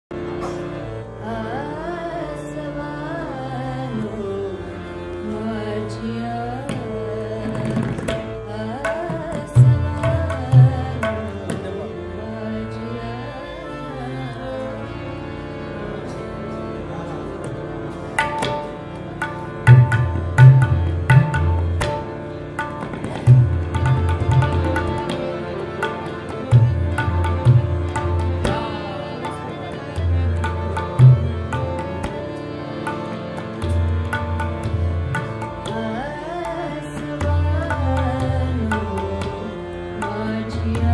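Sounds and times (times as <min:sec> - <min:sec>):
harmonium: 0:00.0 - 0:40.9
woman singing: 0:01.2 - 0:14.9, 0:35.6 - 0:40.9
tabla strokes: 0:06.6 - 0:11.8, 0:17.4 - 0:36.2.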